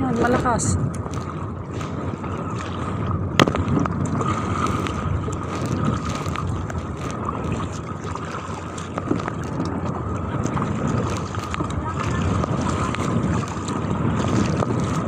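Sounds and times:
water splashing around kayak: 0.0s - 15.0s
wind buffeting microphone: 0.0s - 15.0s.

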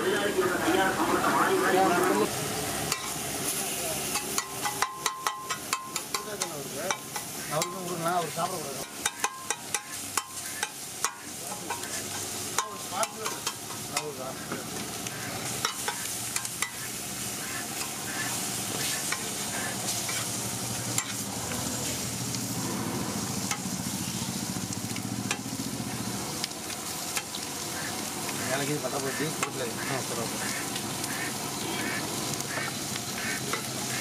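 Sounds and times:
fish sizzling on a griddle: 0.0s - 34.0s
metal spatula clacking on griddle: 2.9s - 3.2s, 4.0s - 14.2s, 15.6s - 16.9s, 17.7s - 18.0s, 19.0s - 19.3s, 20.9s - 21.2s, 23.4s - 23.8s, 25.2s - 25.5s, 27.1s - 27.4s, 29.4s - 29.6s.

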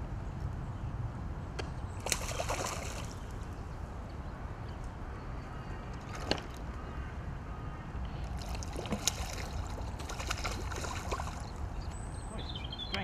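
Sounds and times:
fish splashing in water: 2.0s - 3.3s, 8.3s - 11.6s.

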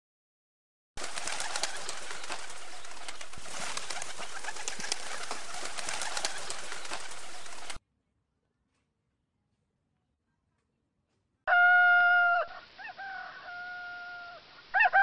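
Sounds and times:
pigeons cooing: 1.0s - 7.8s.

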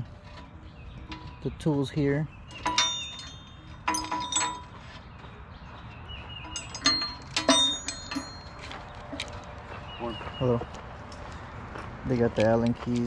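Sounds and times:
metal tools clinking on cables: 0.2s - 5.0s, 6.4s - 9.6s.

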